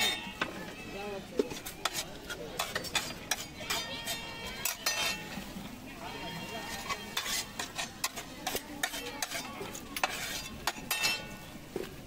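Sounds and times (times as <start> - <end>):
metal spoon scraping steel cookware: 0.0 - 0.4, 1.4 - 5.6, 6.4 - 11.5.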